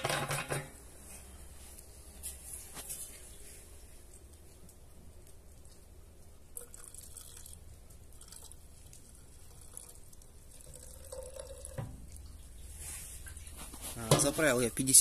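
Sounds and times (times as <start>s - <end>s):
fuel trickling and dripping: 3.2s - 13.6s.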